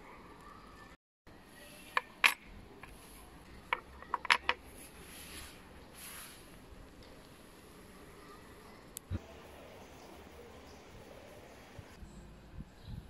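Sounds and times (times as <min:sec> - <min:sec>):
metal pieces clicking on plastic: 0:03.7 - 0:04.6.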